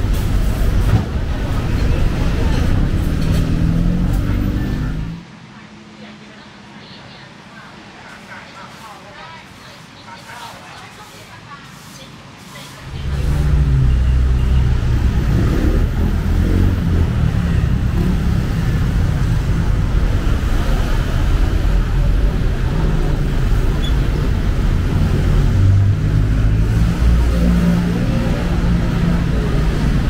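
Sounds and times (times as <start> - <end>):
cars passing: 0.0 - 5.2, 12.8 - 30.0
motorbikes passing: 0.0 - 5.2, 12.8 - 30.0
low traffic rumble: 0.0 - 8.1, 12.2 - 30.0.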